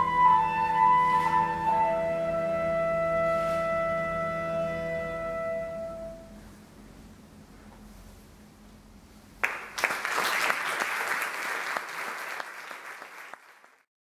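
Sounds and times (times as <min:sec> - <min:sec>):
audience applauding: 0:09.4 - 0:13.9.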